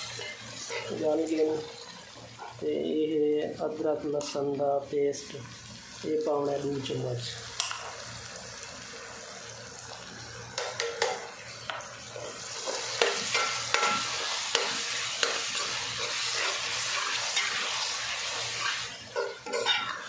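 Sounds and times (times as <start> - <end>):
spoon scraping a pot: 0.0 - 1.0, 18.5 - 20.0
masala sizzling in a pot: 0.0 - 20.0.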